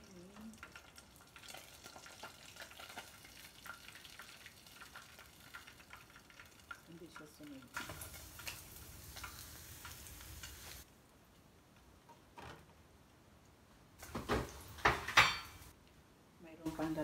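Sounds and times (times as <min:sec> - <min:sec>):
hot oil sizzling: 0:00.0 - 0:10.9, 0:14.0 - 0:15.8, 0:16.7 - 0:17.0.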